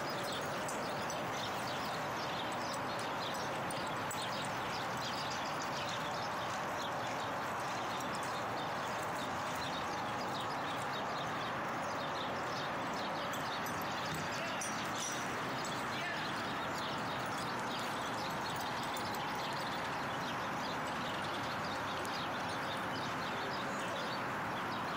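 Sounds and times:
faint distant voices: 11.8 - 24.9.

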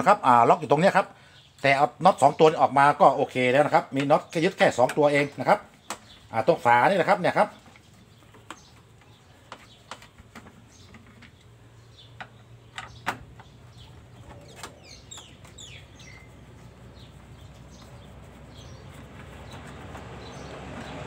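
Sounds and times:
plastic clicks and knocks: 12.1 - 13.6
quick high bird chirps: 14.7 - 20.5.

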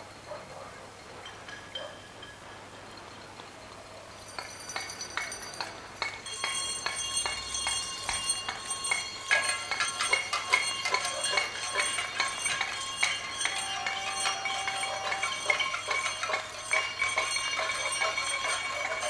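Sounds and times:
handclaps: 4.4 - 19.0
pots and pans banging: 4.4 - 19.0.

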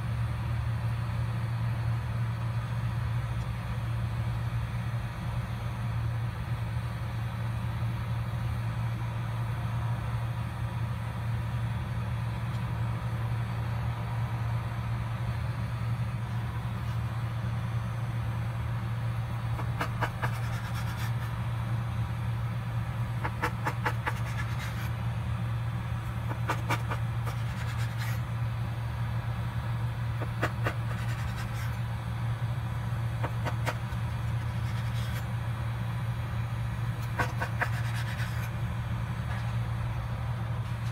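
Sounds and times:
steady low hum: 0.0 - 40.9
knife cutting dough on board: 19.6 - 21.3, 23.2 - 24.9, 37.0 - 38.5.

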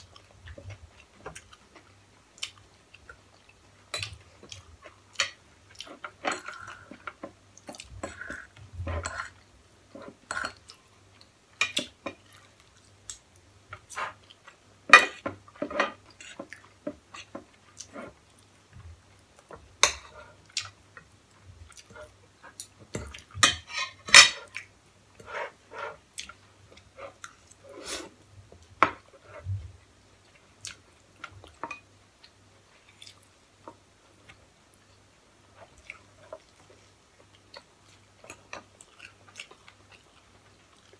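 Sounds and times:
cutlery clinking on plates: 23.0 - 24.5
close-up chewing: 35.6 - 40.9.

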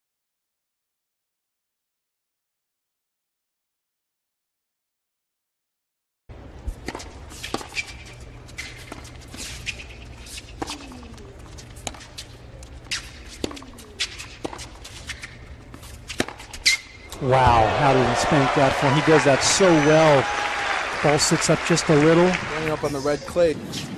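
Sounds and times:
shoes squeaking on court: 6.7 - 17.2
racket striking ball: 11.8 - 12.1, 12.9 - 18.0
ball bouncing: 12.9 - 17.7
stadium background: 17.0 - 23.9.

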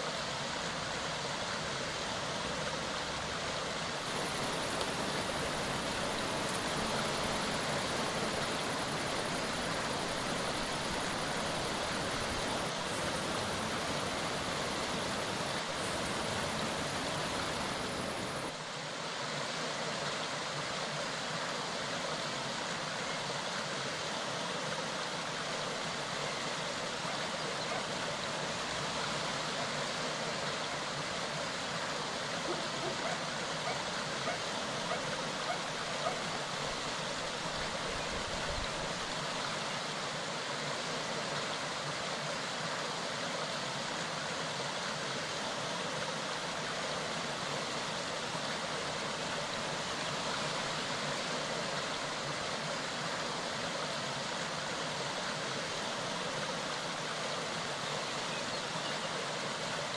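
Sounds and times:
mountain stream babbling: 0.0 - 59.9
faint ticks: 4.5 - 5.0.

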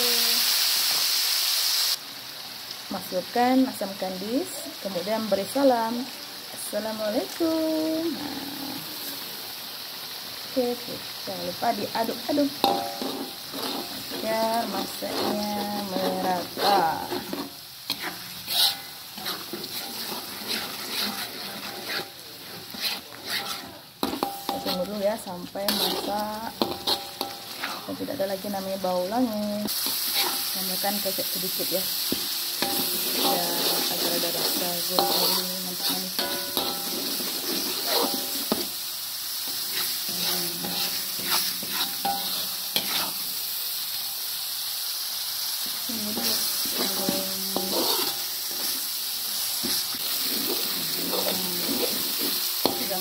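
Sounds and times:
paste frying in oil: 0.0 - 53.0
metal spatula scraping a wok: 11.6 - 43.4, 45.9 - 53.0.

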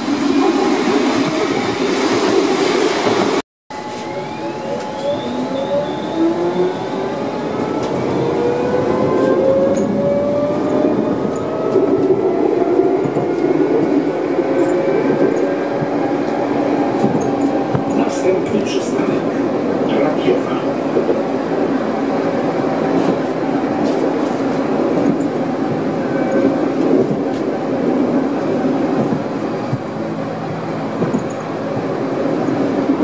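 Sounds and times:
tram passing: 0.0 - 33.0
wheels rumbling on rails: 0.0 - 33.0
tram traction motor whine: 3.7 - 33.0.

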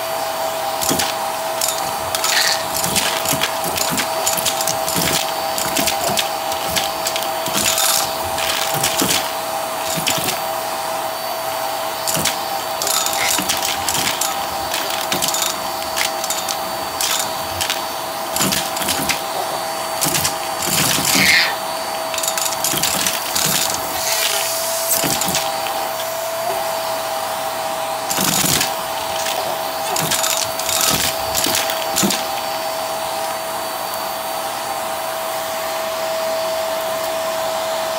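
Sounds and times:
vacuum motor whine: 0.0 - 37.9
items rattling up vacuum tube: 0.7 - 10.6, 12.0 - 26.7, 28.0 - 32.7.

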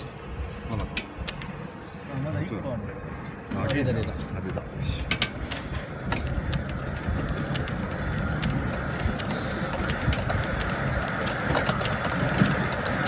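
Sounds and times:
ride car rumbling on rail track: 4.4 - 13.0
sharp clicks and rattles: 5.0 - 13.0.

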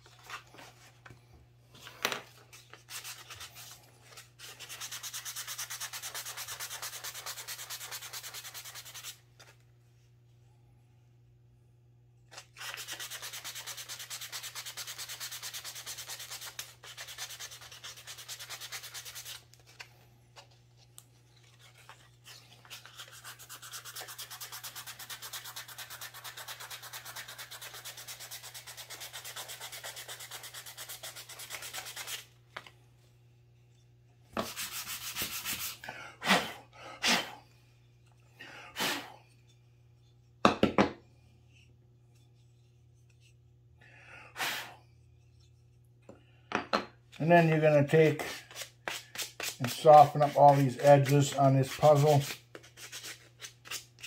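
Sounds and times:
wood rasping on sandpaper: 4.4 - 9.2, 12.6 - 19.4, 22.6 - 32.2, 34.4 - 35.8, 48.2 - 54.0.

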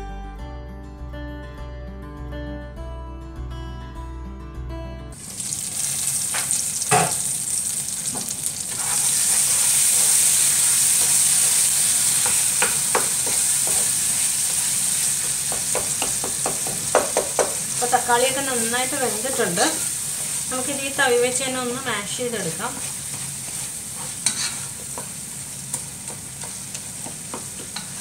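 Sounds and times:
guitar music: 0.0 - 5.2
food sizzling in oil: 5.2 - 28.0
spatula scraping pot: 8.7 - 9.9, 22.6 - 25.1
spatula knocking pan: 12.2 - 17.8, 23.1 - 28.0.

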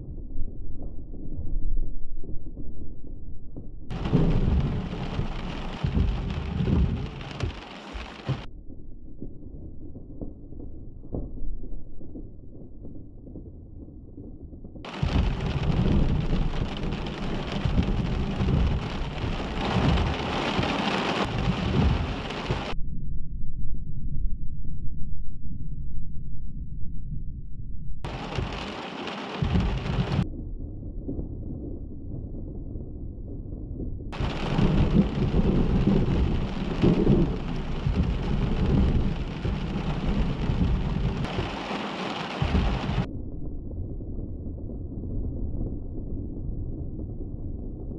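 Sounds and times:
steady rain: 3.9 - 8.5, 14.9 - 22.8, 28.1 - 30.2, 34.2 - 43.1
thunder rumbling: 3.9 - 22.8, 28.0 - 47.9.

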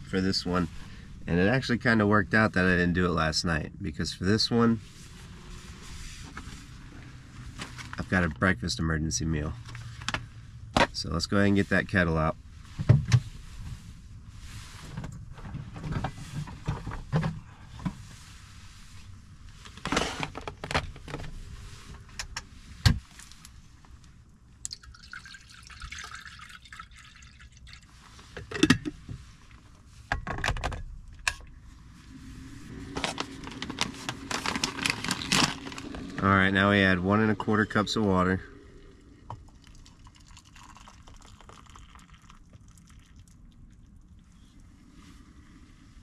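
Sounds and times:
water pouring into kettle: 24.7 - 27.9, 39.2 - 43.4.

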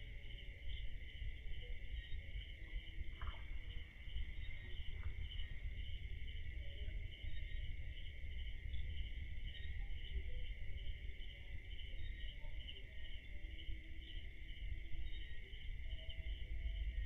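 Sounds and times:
crickets trilling: 0.0 - 17.0
low rumble: 2.4 - 7.6.

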